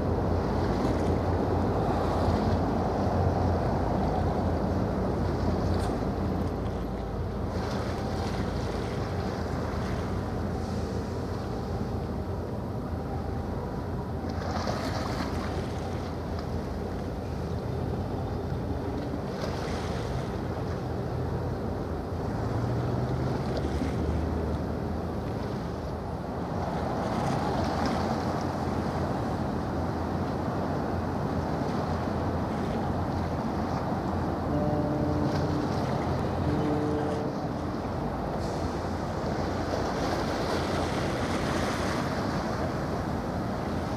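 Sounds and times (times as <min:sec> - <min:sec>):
ship engines droning: 0:00.0 - 0:43.9.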